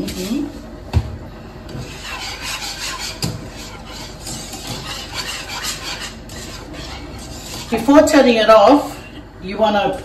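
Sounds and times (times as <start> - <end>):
whisk scraping in pan: 1.7 - 9.1.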